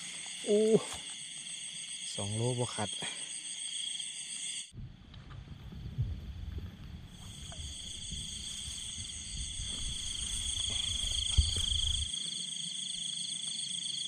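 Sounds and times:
insects and frogs calling: 0:00.0 - 0:04.7, 0:07.1 - 0:14.0
low rumble on microphone: 0:04.7 - 0:12.1.

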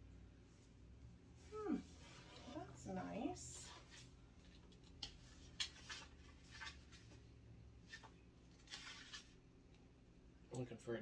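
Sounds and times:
low room hum: 0:00.0 - 0:11.0
book pages rustling: 0:03.6 - 0:09.4.

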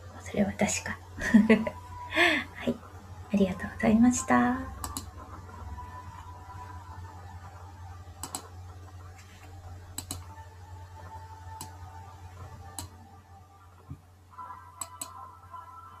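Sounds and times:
low electrical hum: 0:00.0 - 0:16.0
sharp clicks: 0:04.8 - 0:05.1, 0:08.2 - 0:08.5, 0:09.9 - 0:10.3, 0:14.8 - 0:15.2.

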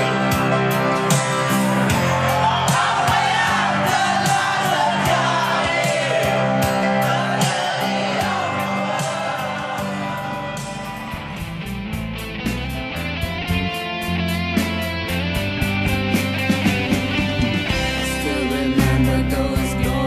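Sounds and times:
backing music with steady beat: 0:00.0 - 0:20.0
men singing into microphone: 0:02.1 - 0:11.0, 0:18.0 - 0:20.0.

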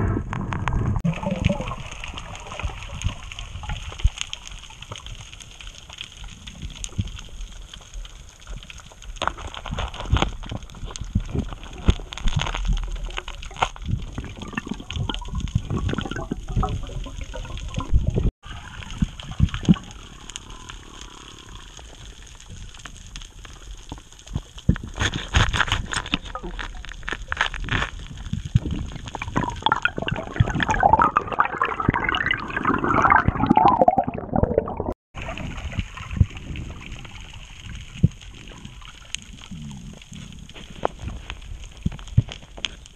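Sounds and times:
underwater bubbling gurgle: 0:00.0 - 0:25.0, 0:26.1 - 0:42.9
muffled underwater water swishing: 0:28.6 - 0:42.9.

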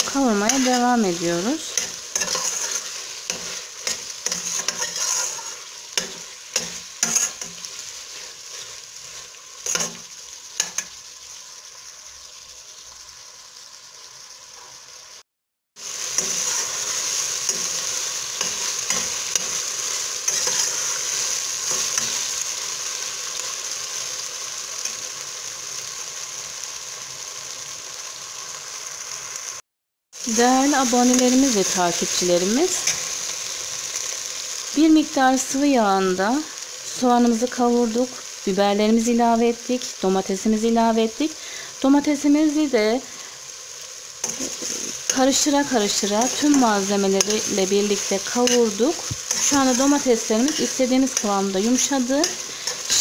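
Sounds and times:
vegetables sizzling in oil: 0:00.0 - 0:53.0
metal spoon scraping pot: 0:01.7 - 0:07.6.

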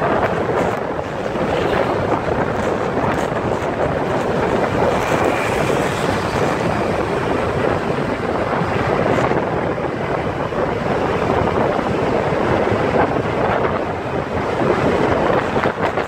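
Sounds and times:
road traffic engine and tyre noise: 0:00.0 - 0:16.0
wind on microphone: 0:00.0 - 0:16.0.

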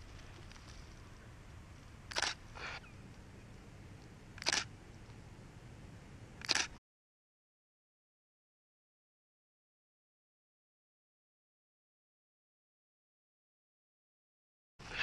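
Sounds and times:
camera shutter clicking: 0:02.1 - 0:02.4, 0:04.4 - 0:04.7, 0:06.4 - 0:06.8.

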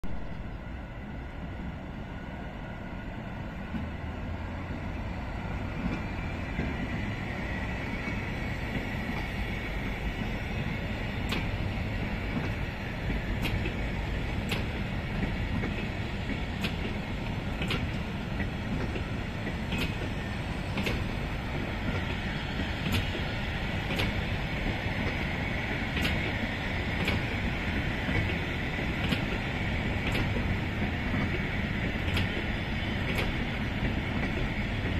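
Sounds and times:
wheels clicking over rail joint: 0:14.4 - 0:22.2, 0:22.8 - 0:24.2, 0:26.0 - 0:26.4, 0:27.0 - 0:27.3, 0:30.0 - 0:34.9.

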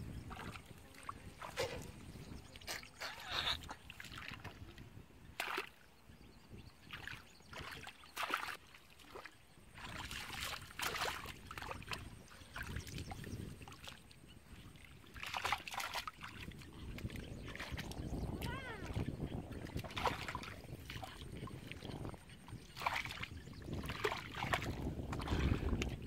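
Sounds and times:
hands splashing in muddy water: 0:02.6 - 0:04.8, 0:05.4 - 0:05.8, 0:06.9 - 0:14.0, 0:15.1 - 0:26.0.

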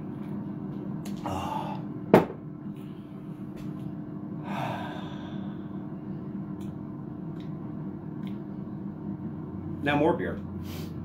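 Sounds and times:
air fryer humming: 0:00.0 - 0:11.0
breathy exhale: 0:01.2 - 0:01.8, 0:04.4 - 0:05.8.

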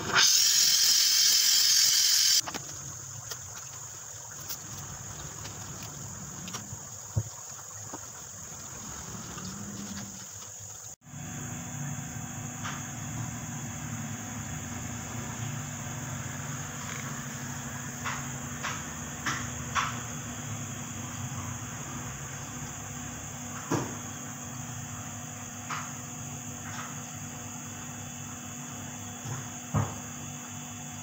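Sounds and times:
torch flame hissing: 0:00.0 - 0:02.4.

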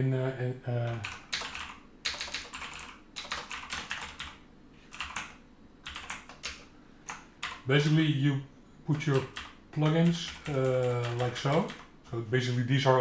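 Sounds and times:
computer keyboard typing: 0:00.8 - 0:07.7, 0:08.9 - 0:11.9.

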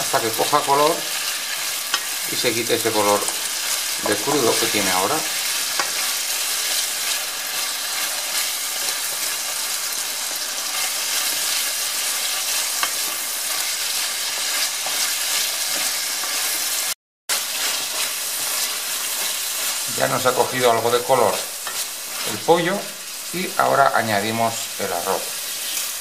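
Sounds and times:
food sizzling in a pan: 0:00.0 - 0:26.0
wooden spoon scraping and tapping: 0:05.7 - 0:06.8, 0:12.4 - 0:16.5, 0:21.3 - 0:22.3.

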